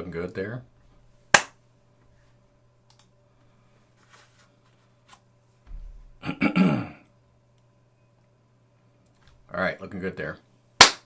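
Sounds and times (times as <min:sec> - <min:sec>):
low electrical hum: 0:00.0 - 0:11.0
man clearing throat: 0:06.2 - 0:07.1.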